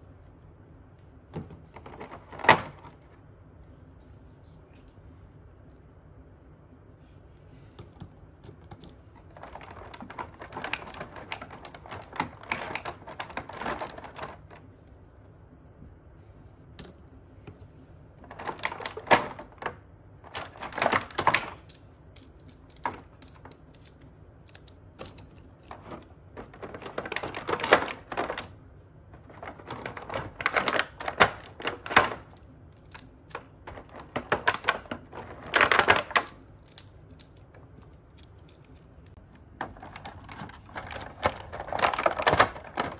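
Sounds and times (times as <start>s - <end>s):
plastic track pieces clattering: 9.3s - 14.5s, 18.2s - 28.5s, 29.2s - 37.4s, 39.6s - 42.9s.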